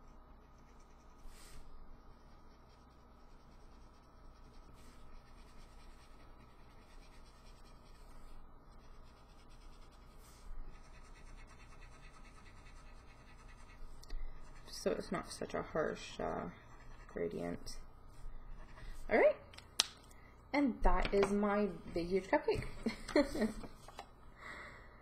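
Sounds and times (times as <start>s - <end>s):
marker rubbing on paper: 0.5s - 19.2s.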